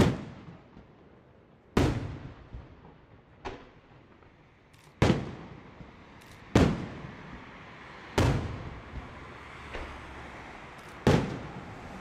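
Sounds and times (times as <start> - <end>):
firework bang: 5.0 - 5.6, 6.5 - 7.0, 8.2 - 9.1, 11.0 - 11.8.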